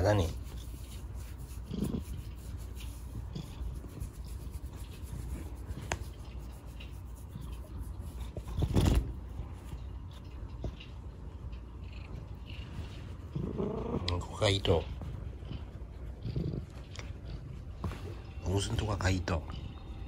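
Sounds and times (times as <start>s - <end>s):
cat head brushing microphone: 0.0s - 10.8s
fingers rubbing cat fur: 0.0s - 19.9s.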